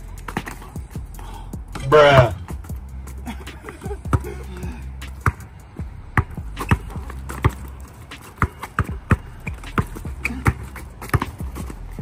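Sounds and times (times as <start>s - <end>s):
basketball bouncing on court: 1.8s - 2.6s, 4.1s - 5.5s, 6.2s - 12.0s.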